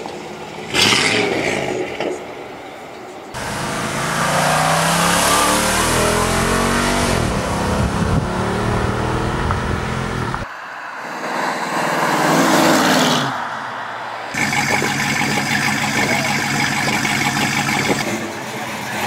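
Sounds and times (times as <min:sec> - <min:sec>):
car engine accelerating past: 0:03.4 - 0:10.5.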